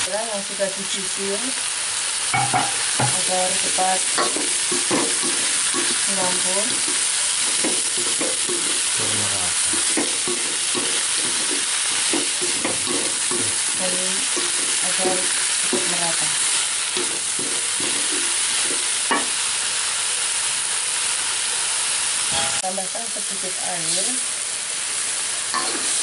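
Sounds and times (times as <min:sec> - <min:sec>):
leaves sizzling in oil: 0:00.0 - 0:26.0
wooden spatula scraping wok: 0:03.0 - 0:19.4.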